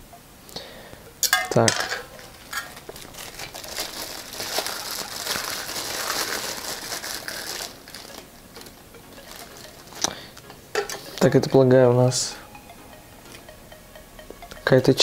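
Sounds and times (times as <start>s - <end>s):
plastic bag crinkling: 2.1s - 11.0s.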